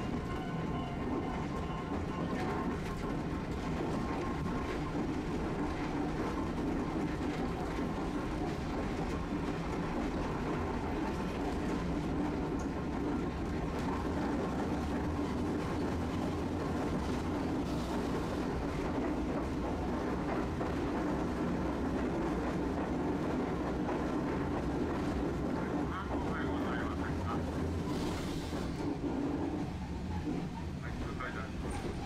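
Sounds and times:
streetcar rumbling on rails: 0.0s - 32.0s.

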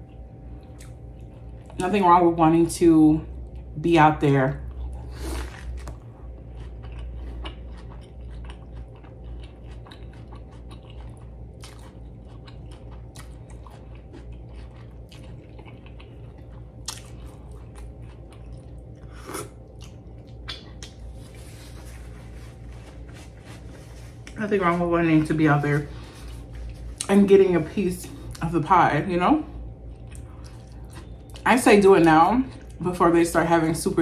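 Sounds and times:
wet chewing: 4.7s - 21.4s, 29.8s - 32.8s.

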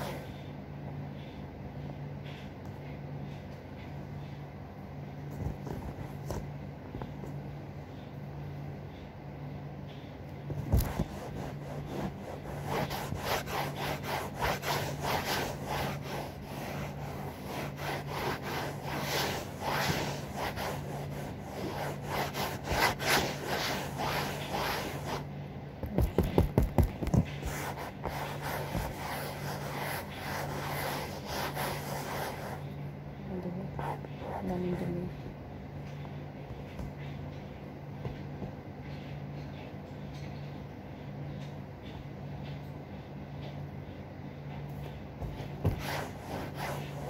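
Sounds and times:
faint steady hum: 0.0s - 47.0s
cloth scrubbing upholstery: 10.6s - 32.7s, 45.2s - 47.0s.

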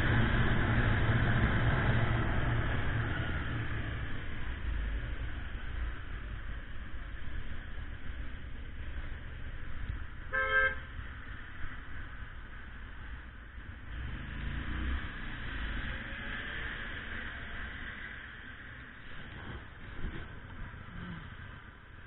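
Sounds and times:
car horn toot: 10.3s - 10.9s.

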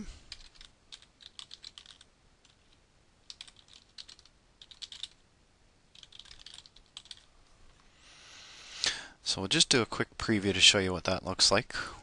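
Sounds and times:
computer keyboard typing: 0.3s - 5.2s, 5.9s - 7.3s.

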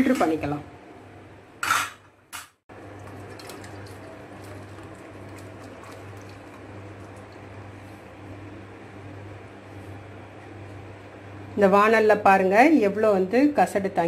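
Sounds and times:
liquid trickling into pot: 2.7s - 7.8s.

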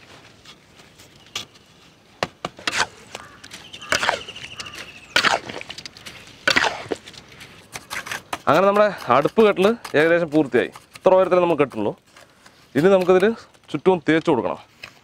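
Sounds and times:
trowel scraping mortar in metal pan: 2.6s - 13.6s.

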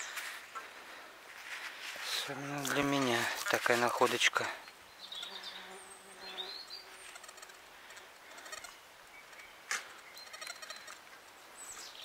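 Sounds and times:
distant bird calls: 4.4s - 12.0s
fly buzzing: 5.1s - 8.8s, 9.7s - 11.1s.

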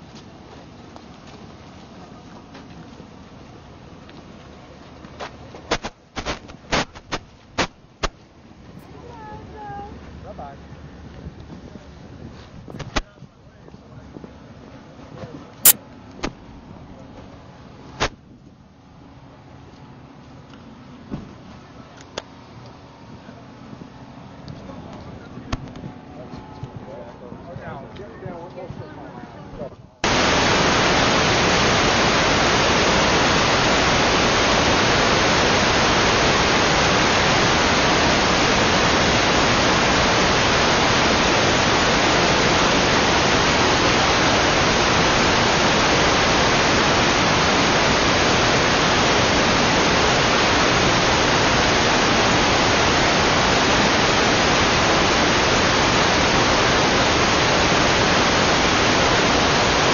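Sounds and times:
static hiss: 5.2s - 8.2s, 30.0s - 59.9s.

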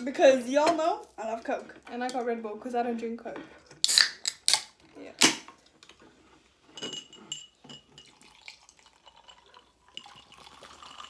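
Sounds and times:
drink cans popping open: 3.8s - 5.5s
glass and ice clinking: 6.7s - 11.0s.

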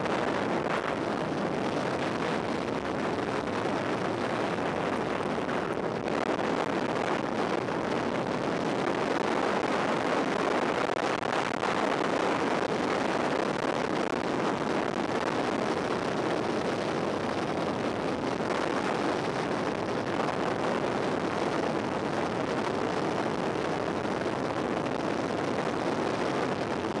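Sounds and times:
wind rushing over microphone: 0.0s - 27.0s.

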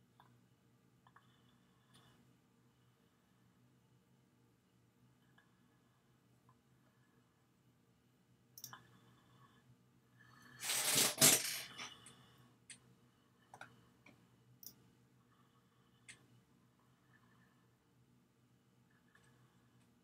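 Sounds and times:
computer mouse clicks: 8.6s - 8.8s.

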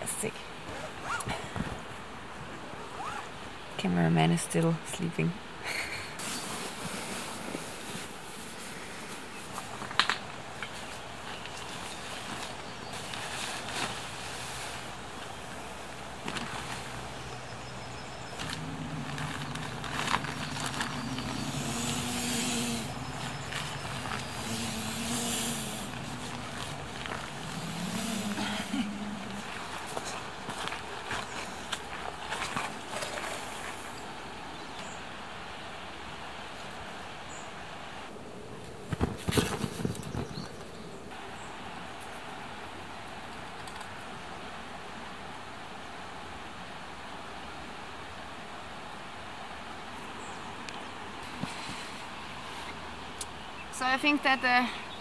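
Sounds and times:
outdoor background hiss: 0.0s - 55.0s
sleeping pad rustles and knocks: 6.2s - 14.9s, 16.2s - 17.0s, 18.3s - 22.2s
sand and gravel being scooped: 11.7s - 15.5s, 18.4s - 32.5s
low motor hum: 15.9s - 30.4s.

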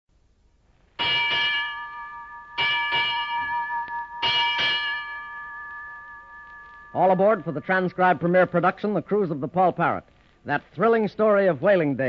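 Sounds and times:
ship's bell ringing: 1.0s - 9.6s.

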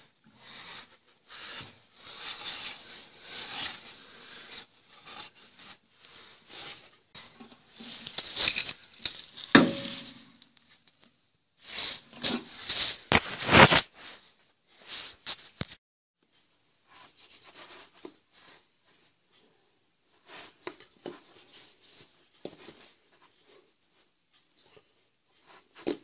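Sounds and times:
scrapes and knocks: 0.3s - 10.4s.

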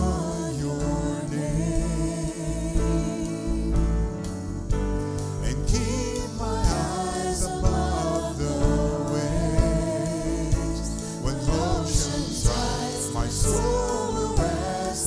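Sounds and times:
worship band playing: 0.0s - 15.0s
person singing: 5.4s - 15.0s.

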